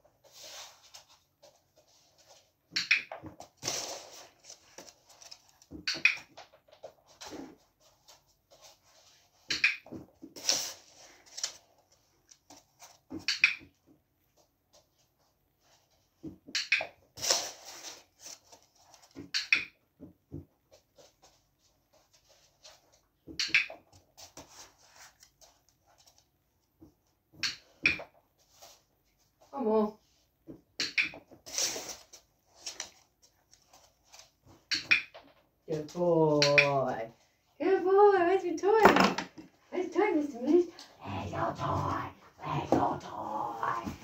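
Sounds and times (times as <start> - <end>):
dog paws scuffling on floor: 0.0 - 19.3, 20.0 - 44.0.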